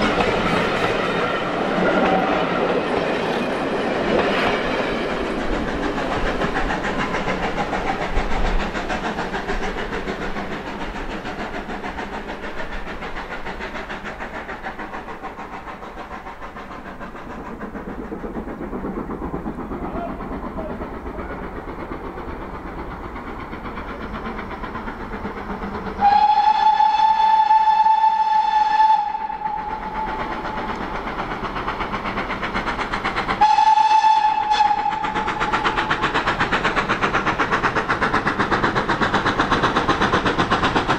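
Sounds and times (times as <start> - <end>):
train coaches clattering on rails: 0.0 - 40.9
steam locomotive whistle: 1.9 - 2.6, 26.0 - 30.8, 33.4 - 36.0.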